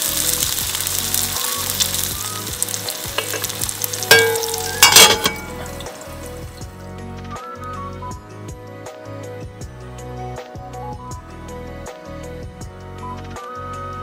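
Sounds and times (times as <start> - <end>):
patties sizzling in skillet: 0.0 - 6.8
metal pan lid clanging: 3.1 - 6.0.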